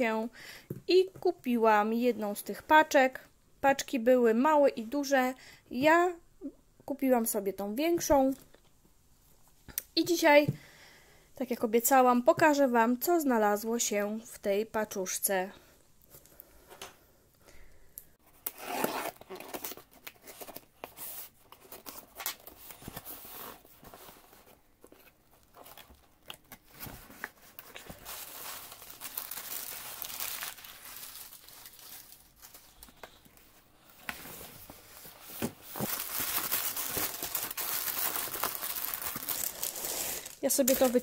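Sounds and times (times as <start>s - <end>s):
bubble wrap and paper crinkling: 18.3s - 41.0s
packing tape ripping off box: 18.4s - 20.6s.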